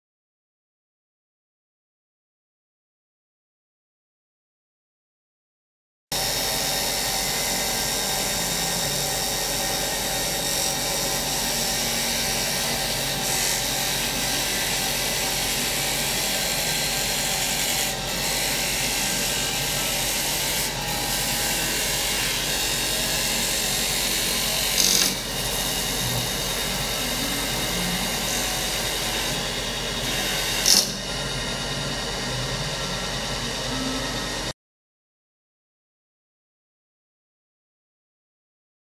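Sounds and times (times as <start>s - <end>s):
wood lathe whine: 6.1s - 34.6s.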